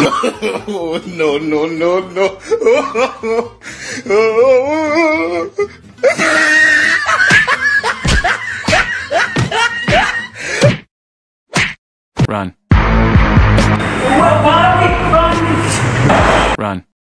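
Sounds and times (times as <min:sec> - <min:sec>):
comedy background music: 0:00.0 - 0:03.6, 0:04.5 - 0:10.8
people laughing: 0:00.0 - 0:03.6, 0:06.0 - 0:10.7
sharp slap-like hits: 0:11.5 - 0:11.8, 0:15.6 - 0:16.6.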